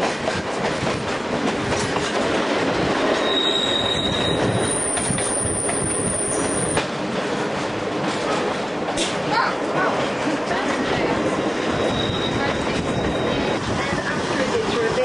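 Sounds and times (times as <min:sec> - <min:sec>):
train rolling rumble: 0:00.0 - 0:15.0
train wheels squealing: 0:03.1 - 0:06.8, 0:11.4 - 0:13.7.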